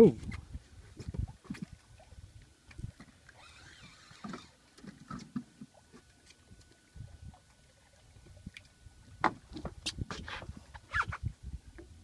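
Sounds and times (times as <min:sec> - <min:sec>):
knocks and thumps on boat: 0:09.2 - 0:10.4.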